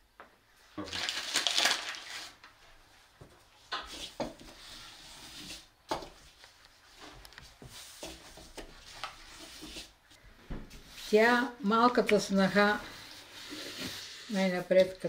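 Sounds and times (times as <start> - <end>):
paper bag rustling: 0.9 - 2.4.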